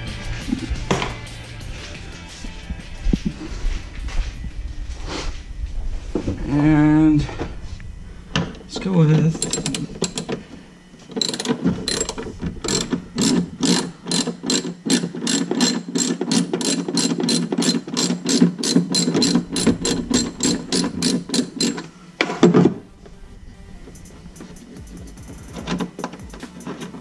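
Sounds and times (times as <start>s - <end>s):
ratchet wrench clicking: 9.4s - 10.3s, 11.2s - 21.9s.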